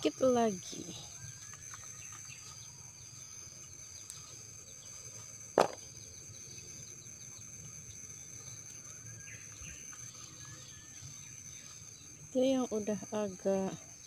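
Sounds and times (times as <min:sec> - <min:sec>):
insects droning: 0:00.0 - 0:14.0
faint bird chirps: 0:00.1 - 0:14.0
sharp knock: 0:05.6 - 0:05.8.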